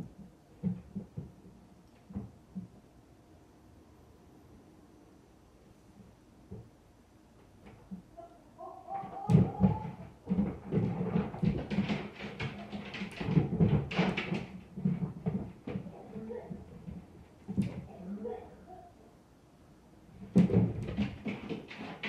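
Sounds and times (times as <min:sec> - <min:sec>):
thumping through ceiling: 0:00.0 - 0:02.8, 0:08.9 - 0:18.4, 0:20.1 - 0:22.0.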